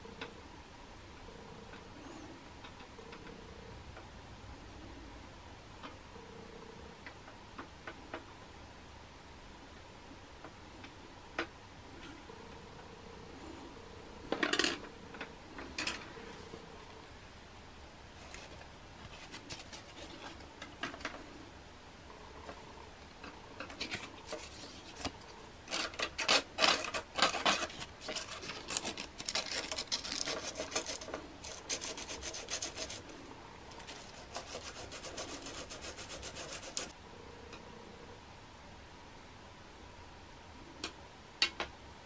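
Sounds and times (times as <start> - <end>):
sandpaper scraping: 25.7 - 33.1, 33.8 - 36.9.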